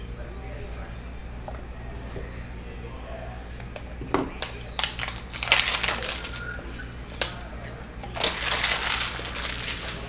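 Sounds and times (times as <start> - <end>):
foil wrappers crinkling: 4.4 - 10.0.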